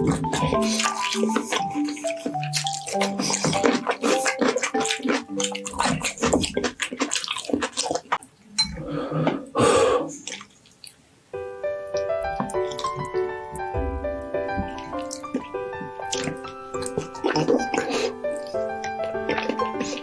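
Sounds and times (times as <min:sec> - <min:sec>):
light background music: 0:00.0 - 0:06.6, 0:11.4 - 0:20.0
wet slurps: 0:00.0 - 0:08.3, 0:14.8 - 0:20.0
wet chewing clicks and smacks: 0:00.0 - 0:08.5, 0:10.2 - 0:11.0, 0:11.9 - 0:13.8, 0:14.4 - 0:20.0.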